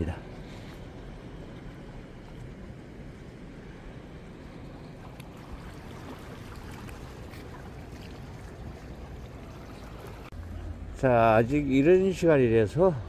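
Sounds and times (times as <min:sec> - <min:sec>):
wind: 0:00.0 - 0:13.0
small waves lapping against rocks: 0:00.4 - 0:10.4.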